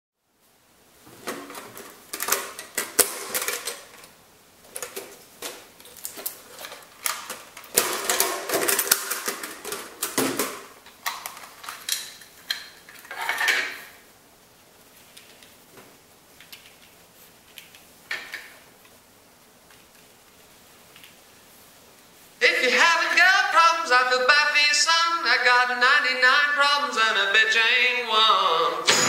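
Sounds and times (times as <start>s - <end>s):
metal tin clicking and clattering: 1.7s - 4.0s, 6.6s - 13.8s
plastic cassette rattling: 1.7s - 4.1s, 4.7s - 13.3s.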